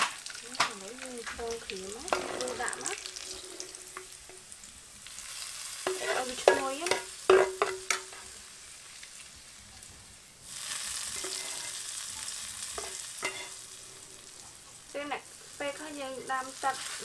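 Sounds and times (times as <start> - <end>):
loud oil sizzle: 0.0 - 17.0
metal ladle scraping frying pan: 1.2 - 4.5, 5.8 - 8.3, 10.5 - 11.9, 12.7 - 13.8.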